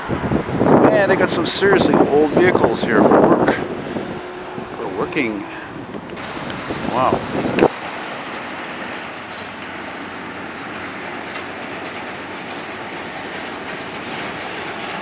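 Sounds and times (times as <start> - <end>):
carts rolling: 6.2 - 15.0.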